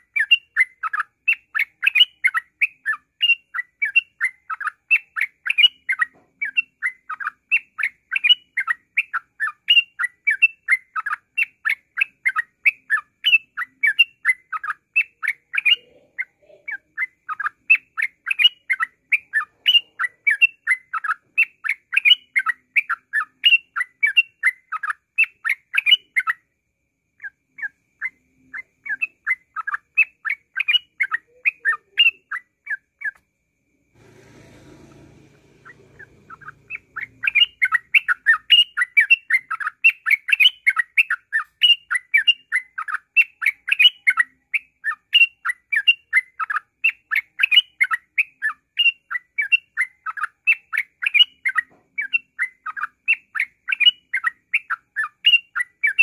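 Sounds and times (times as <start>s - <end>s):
bird chirping song: 0.0s - 56.0s.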